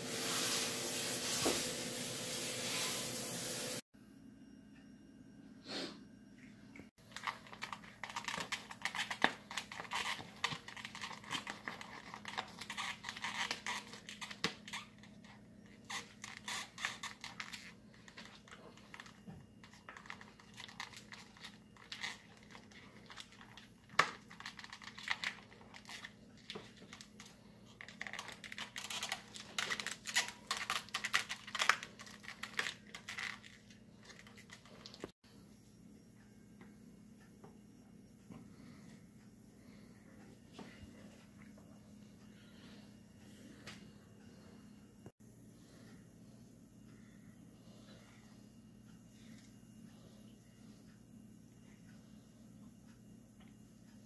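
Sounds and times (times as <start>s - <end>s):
steady hiss: 0.0s - 3.8s
plastic packaging crinkling: 7.0s - 35.1s
scissors snipping plastic: 27.8s - 33.5s.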